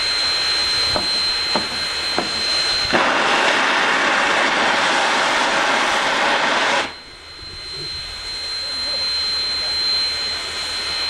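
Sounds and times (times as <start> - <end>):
steam locomotive hissing steam: 0.0 - 11.0
thin high steady tone: 6.8 - 11.0.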